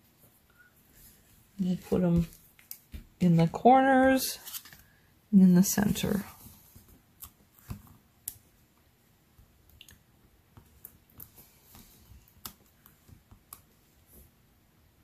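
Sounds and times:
faint clicks and light taps: 0:09.4 - 0:14.3.

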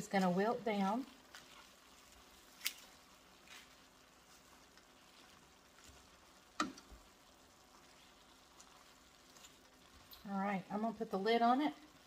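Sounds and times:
faint sizzling in a skillet: 0:00.0 - 0:12.0
wooden spatula clicking on pan: 0:06.5 - 0:07.0.

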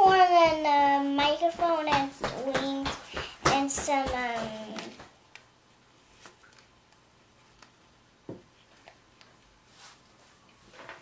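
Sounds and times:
soft rustle: 0:08.6 - 0:11.0.

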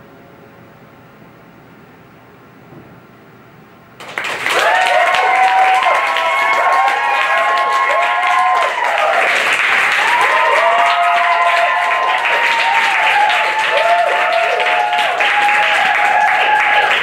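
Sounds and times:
audience applauding: 0:04.0 - 0:17.0
people cheering: 0:04.0 - 0:17.0.

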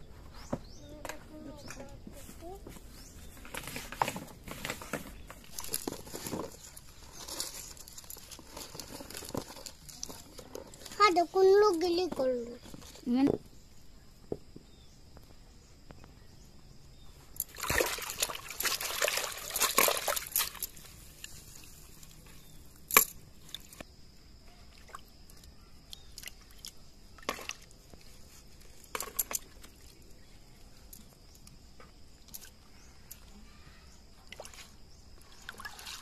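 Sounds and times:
water sloshing in a bucket: 0:03.4 - 0:11.2, 0:17.4 - 0:23.8, 0:24.6 - 0:31.2, 0:34.0 - 0:36.0.

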